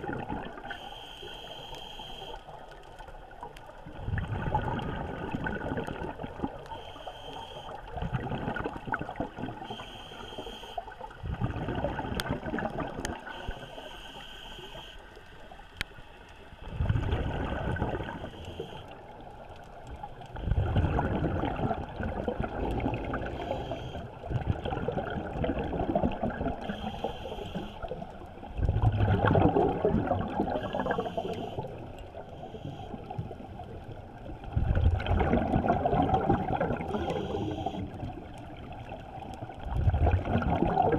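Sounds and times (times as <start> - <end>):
exhaled bubbles rumbling underwater: 0.0 - 40.9
regulator hissing inhales: 9.7 - 10.8, 13.4 - 15.1, 23.3 - 24.1, 26.7 - 27.9, 32.4 - 33.2, 37.0 - 37.9.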